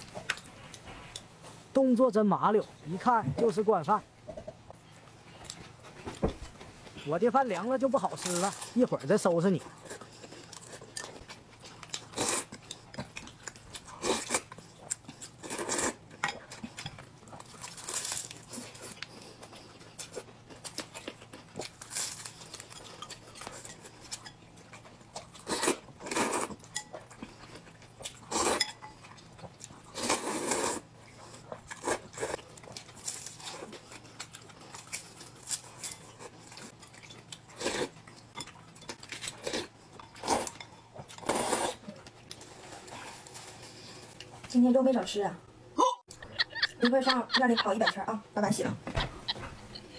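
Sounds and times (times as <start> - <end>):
slurping noodles: 30.0 - 30.9, 41.2 - 41.8.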